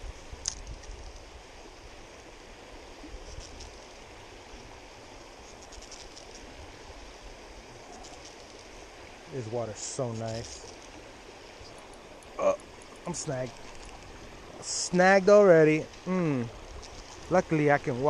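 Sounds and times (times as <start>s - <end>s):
river water rippling over rocks: 0.0s - 18.0s
faint high crackles: 3.1s - 4.2s, 5.3s - 8.9s, 9.6s - 18.0s.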